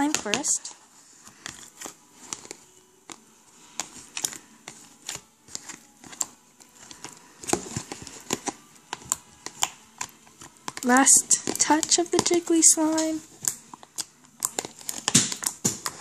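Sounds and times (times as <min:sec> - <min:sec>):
slime clicking and popping: 0:11.3 - 0:16.0.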